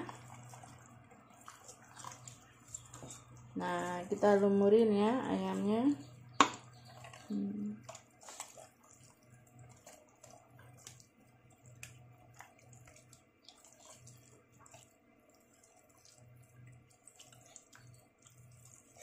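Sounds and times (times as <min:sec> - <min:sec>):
wet squelches of raw chicken: 0:00.0 - 0:04.4, 0:05.2 - 0:19.0.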